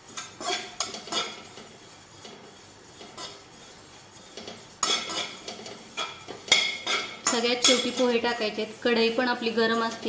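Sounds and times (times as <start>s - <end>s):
spatula scraping a metal pan: 0.0s - 10.0s.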